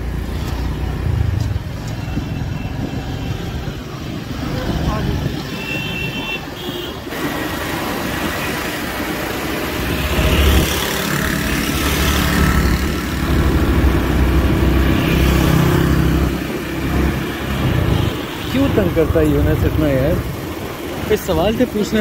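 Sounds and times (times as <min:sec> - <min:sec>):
motorcycle engine revving: 0:07.1 - 0:21.7.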